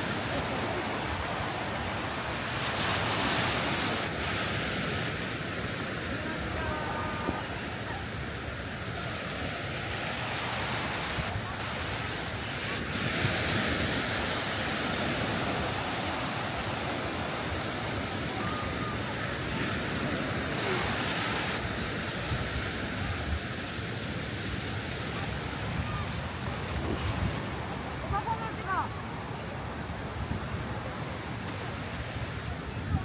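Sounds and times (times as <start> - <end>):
small waves breaking on beach: 0.0 - 33.0
wind buffeting microphone: 9.2 - 33.0.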